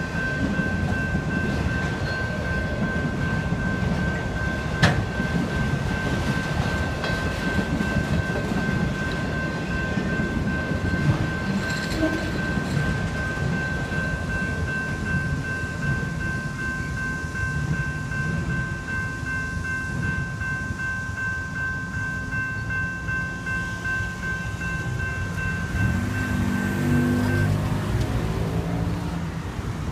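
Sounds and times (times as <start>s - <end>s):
electronic crossing bells ringing: 0.0s - 29.2s
freight train rumbling past: 0.0s - 29.9s.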